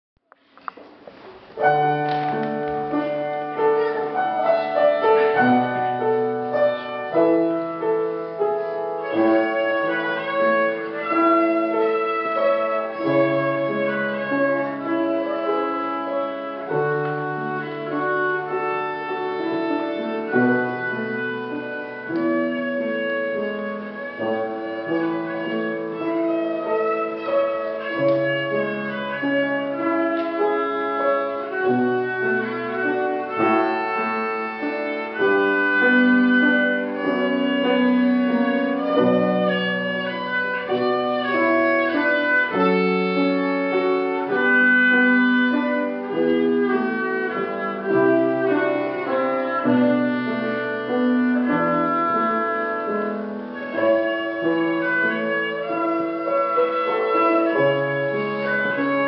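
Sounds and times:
piano accompaniment: 0:00.2 - 0:59.0
violin melody: 0:01.5 - 0:59.0.

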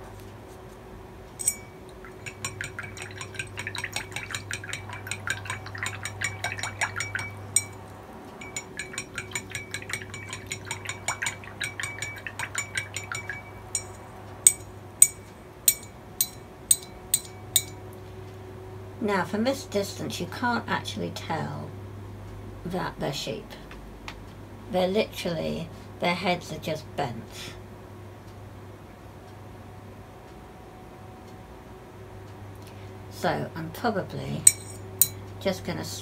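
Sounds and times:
brush clinking against glass jar: 0:01.4 - 0:17.8, 0:34.4 - 0:35.2.

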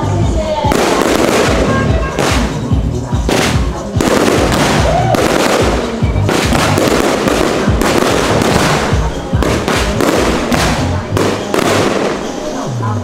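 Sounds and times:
fireworks bangs and crackling: 0:00.0 - 0:13.0.

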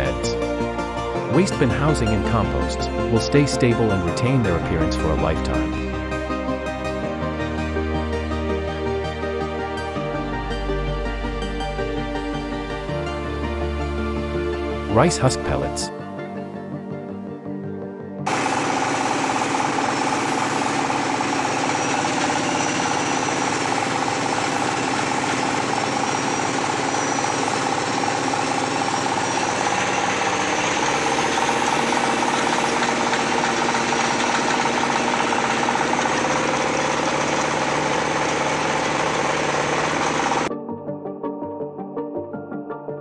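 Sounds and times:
pellet mill running: 0:01.0 - 0:06.0, 0:18.3 - 0:40.5.

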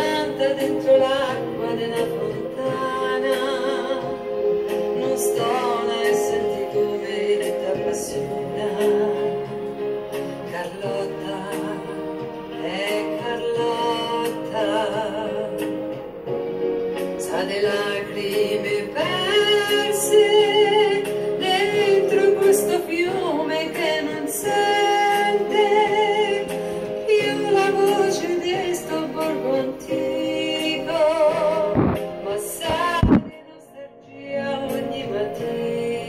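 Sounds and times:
woman singing with vibrato: 0:00.0 - 0:09.8, 0:10.4 - 0:15.8, 0:17.2 - 0:36.0
steady musical accompaniment: 0:00.0 - 0:36.0
dull bumps: 0:31.8 - 0:32.1.

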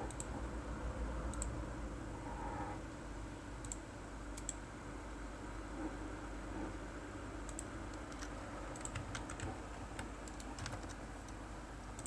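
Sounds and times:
computer mouse clicking: 0:00.0 - 0:00.3, 0:01.3 - 0:01.6, 0:03.6 - 0:03.8, 0:04.4 - 0:04.6, 0:07.4 - 0:11.4
low steady hum: 0:00.0 - 0:12.0.

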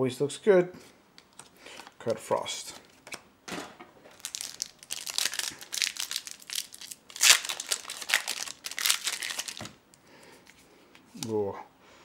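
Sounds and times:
foil wrapper crinkling while torn: 0:04.1 - 0:09.8.

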